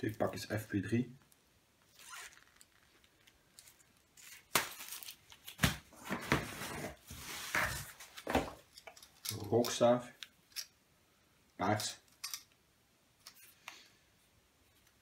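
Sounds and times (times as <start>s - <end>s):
cardboard and plastic rustling: 2.2s - 9.0s.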